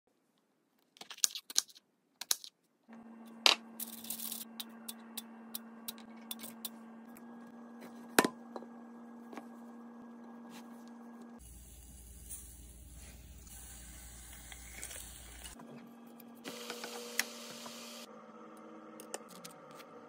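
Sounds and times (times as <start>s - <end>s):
steady low hum: 2.9s - 16.5s.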